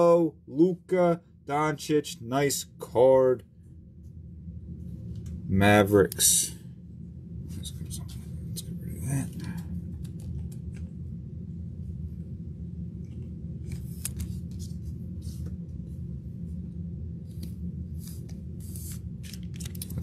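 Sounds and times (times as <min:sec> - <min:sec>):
steady low hum: 0:00.0 - 0:20.0
cards and plastic sleeves rustling: 0:13.7 - 0:15.5, 0:17.4 - 0:20.0.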